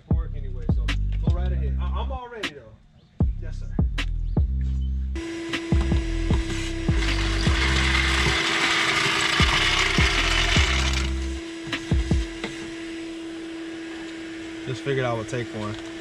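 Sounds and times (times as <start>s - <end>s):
deep bass line: 0.0s - 2.3s, 3.2s - 5.2s, 5.8s - 8.4s, 9.4s - 12.4s
kick drum beat: 0.1s - 1.6s, 3.2s - 4.6s, 5.7s - 7.6s, 11.9s - 12.3s
rasping ratchet-like noise: 6.2s - 11.4s.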